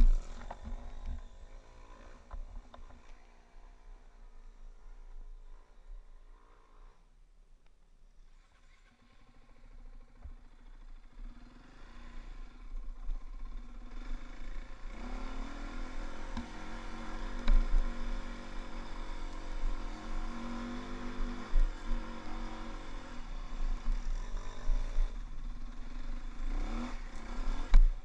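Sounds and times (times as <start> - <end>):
dirt bike engine running: 0.0 - 3.1, 9.0 - 28.0.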